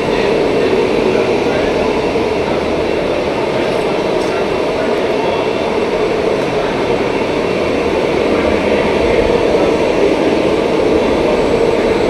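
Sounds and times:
gas burners roaring: 0.0 - 12.0.

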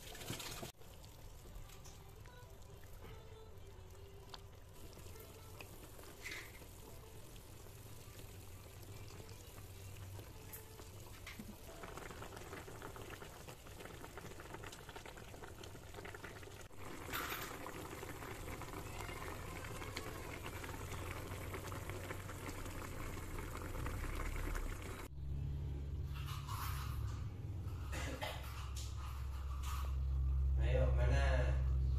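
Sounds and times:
broth bubbling in a pan: 0.0 - 25.1.

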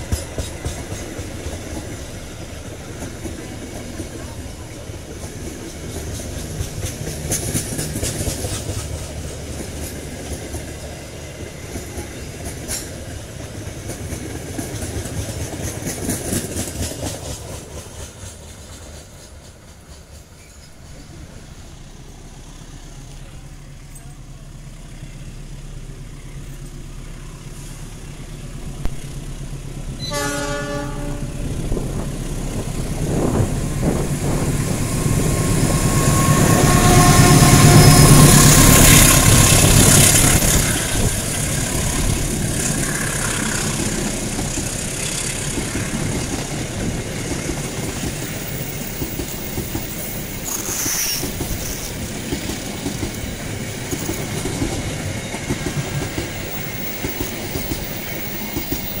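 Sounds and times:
diesel locomotive engine: 0.0 - 59.0
train coaches rolling on track: 0.0 - 59.0
locomotive horn: 30.0 - 31.5, 35.7 - 39.2.

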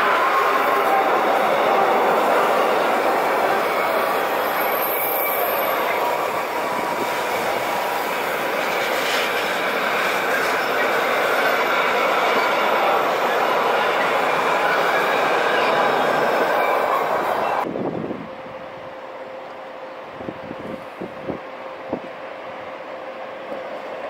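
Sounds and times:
wheels squealing: 0.0 - 17.6
wheel on rail noise: 0.0 - 24.0.

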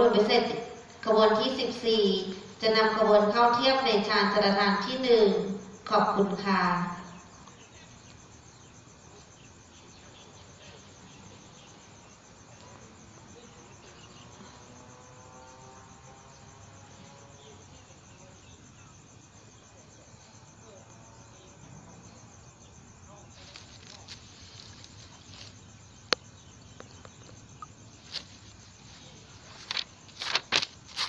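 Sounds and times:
crickets chirping: 0.0 - 31.0.

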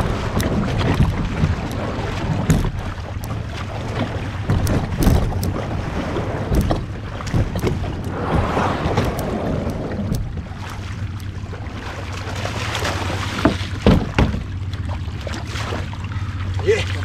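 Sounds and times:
wind buffeting microphone: 0.0 - 3.0, 3.7 - 11.1
moving water: 0.0 - 17.0
light knocks and taps: 4.4 - 5.6.

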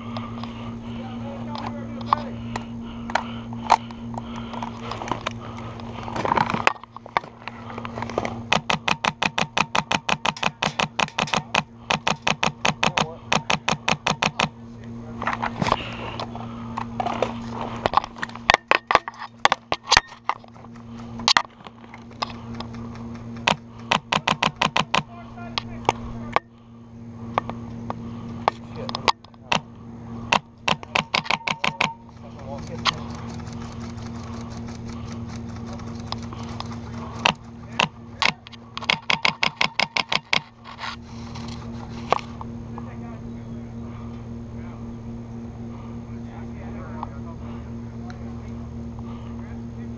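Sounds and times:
low hum: 0.0 - 49.9
airsoft guns firing: 8.5 - 14.6, 23.4 - 25.1.

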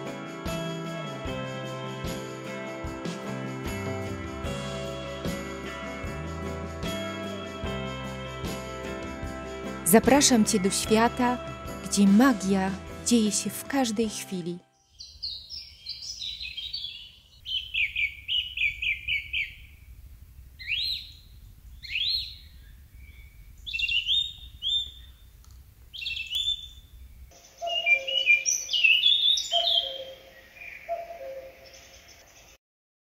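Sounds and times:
songbirds chirping and whistling: 14.8 - 19.8, 20.6 - 32.6.

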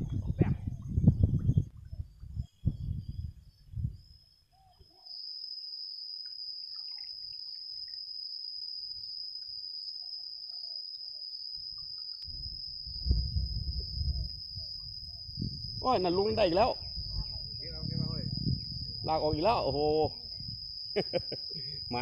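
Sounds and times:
high-pitched insect trill: 0.0 - 22.0
low rumbling noise: 12.3 - 19.4.

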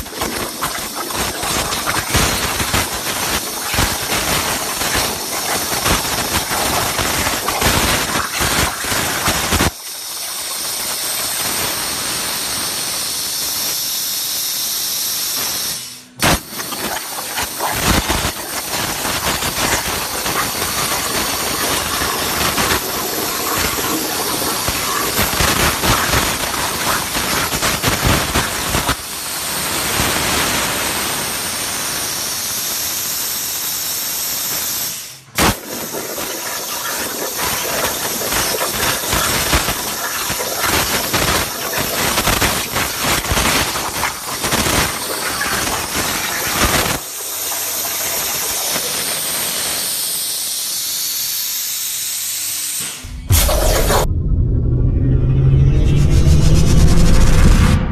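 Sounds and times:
plasma cutter torch hissing: 0.4 - 10.2, 11.3 - 47.4, 48.8 - 54.1
sharp bang of plasma arc: 16.2 - 16.7, 35.4 - 36.0, 52.8 - 57.9.

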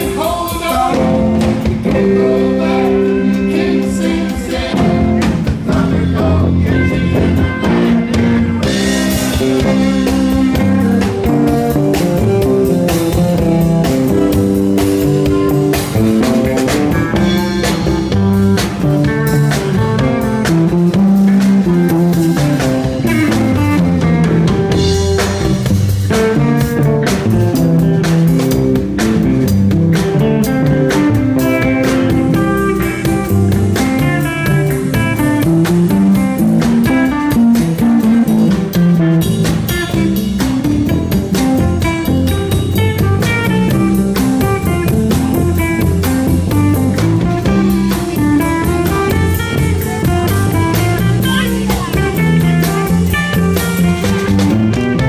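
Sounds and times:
drum kit: 0.0 - 55.0
electric bass: 0.0 - 55.0
electric guitar lead: 0.0 - 55.0.

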